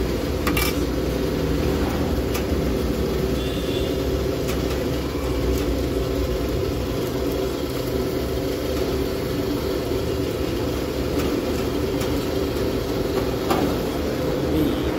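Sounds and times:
steady mechanical hum: 0.0s - 14.9s.

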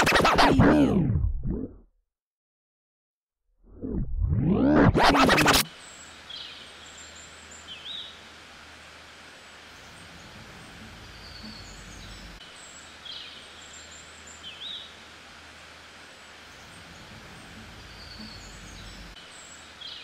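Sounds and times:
steady background hiss: 5.7s - 20.0s.

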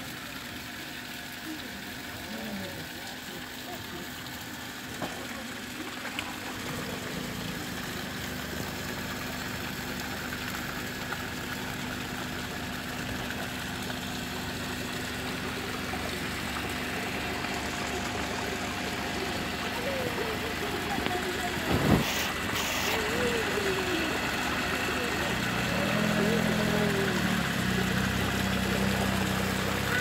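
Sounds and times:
small waterfall rushing: 12.6s - 30.0s.

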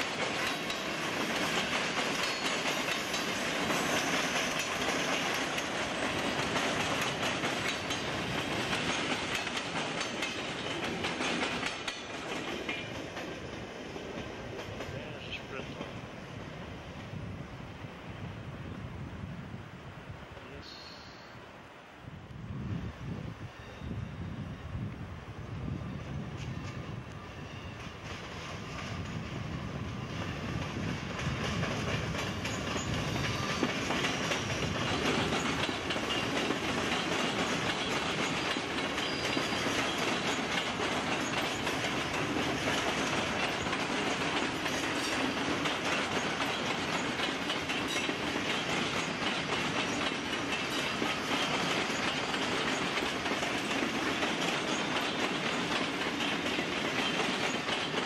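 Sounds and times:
wheels clicking over rail joints: 0.0s - 15.1s, 29.8s - 58.0s
train running rumble: 0.0s - 20.4s, 24.4s - 58.0s.

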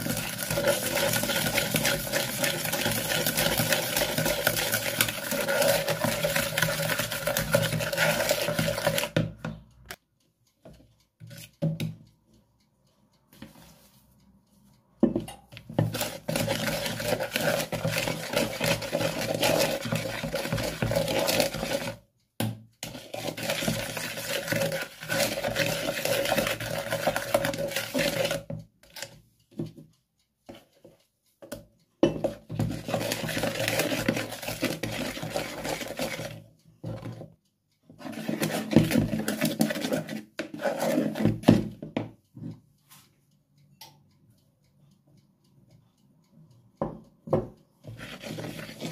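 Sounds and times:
electric hand mixer whirring: 0.0s - 9.1s.

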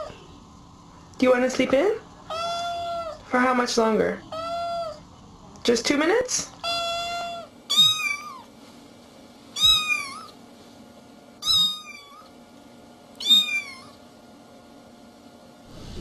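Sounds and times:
cat meowing: 2.3s - 3.2s, 4.3s - 5.0s, 6.6s - 8.4s, 9.6s - 10.4s, 11.4s - 12.3s, 13.2s - 14.0s.

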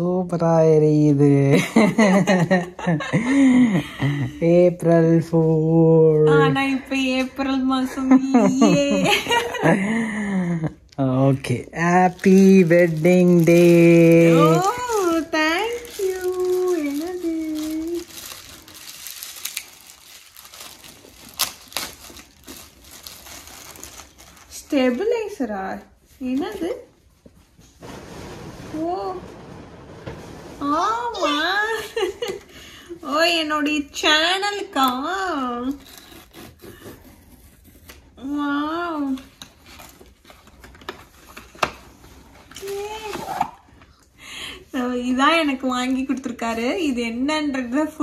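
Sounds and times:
plastic bag crinkling: 11.4s - 25.3s.

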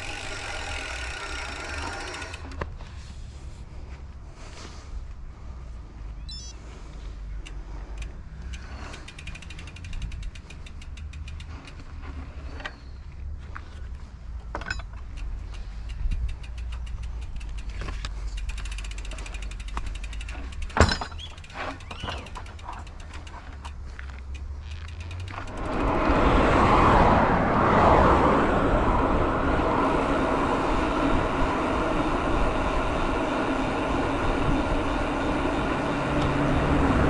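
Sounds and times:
fast bike clicking: 0.0s - 2.8s, 6.9s - 12.8s, 14.6s - 26.4s, 29.8s - 37.0s
wind and tyre rumble: 0.0s - 37.0s.

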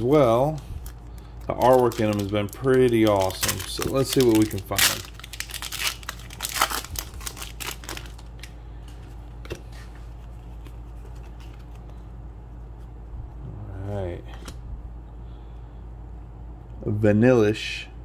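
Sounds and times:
foil wrapper crinkling and tearing: 0.0s - 8.6s.

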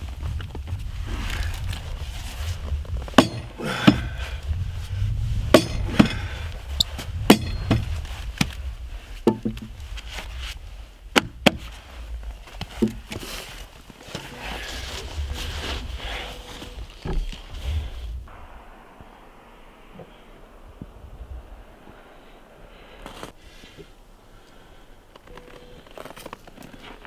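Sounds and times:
low steady rumble: 0.0s - 25.1s
heavy thuds of tool hitting log: 3.2s - 4.2s, 5.5s - 6.4s, 7.3s - 8.5s, 11.1s - 11.7s.

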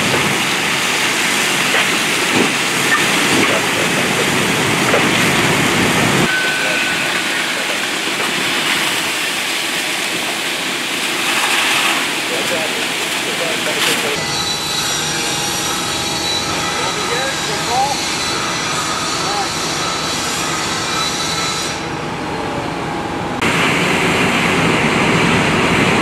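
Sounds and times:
fire truck engine running: 0.0s - 14.2s, 21.8s - 26.0s
hose water spraying: 0.0s - 14.2s.

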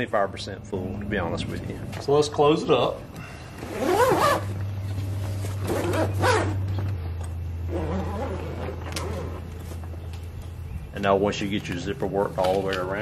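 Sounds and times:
zipper pulled closed: 3.6s - 4.6s, 5.5s - 6.8s, 7.7s - 9.7s.

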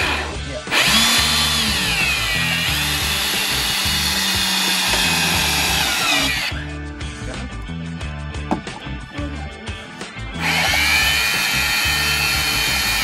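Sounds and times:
cordless drill driving screw into wood: 0.0s - 6.5s, 10.4s - 13.0s.

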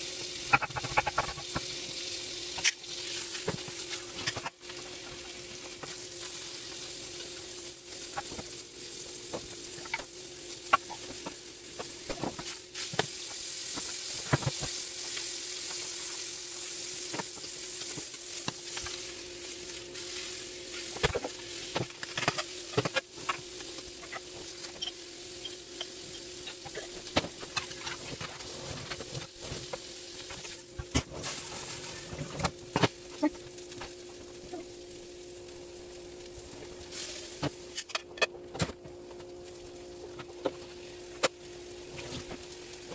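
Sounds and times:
steak and onions sizzling: 0.0s - 37.8s, 38.9s - 42.9s
utensils clicking on pans: 0.4s - 1.8s, 20.7s - 31.1s.

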